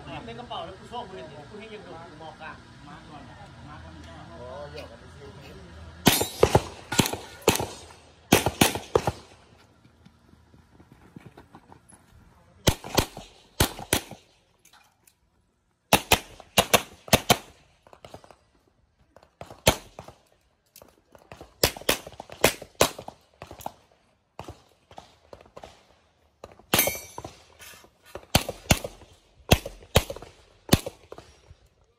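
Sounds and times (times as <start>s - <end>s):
gunshots: 6.0s - 9.5s, 12.6s - 14.3s, 15.9s - 18.3s, 19.4s - 20.2s, 21.3s - 23.8s, 28.2s - 31.3s.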